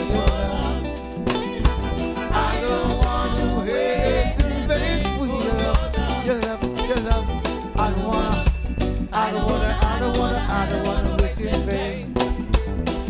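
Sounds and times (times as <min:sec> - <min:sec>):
person singing: 0:00.0 - 0:01.0, 0:02.2 - 0:12.1
electric bass: 0:00.0 - 0:13.0
reggae band playing: 0:00.0 - 0:13.0.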